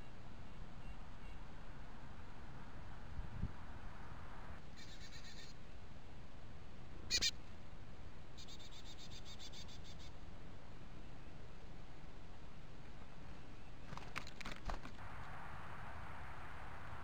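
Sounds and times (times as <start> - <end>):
high-pitched pulsed animal calls: 4.8 - 5.6, 8.4 - 10.1
steady hiss: 15.0 - 17.0.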